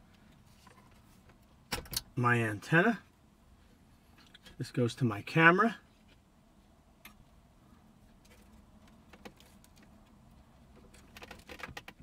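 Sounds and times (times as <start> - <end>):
cable plugs clicking and rattling: 8.3 - 12.0.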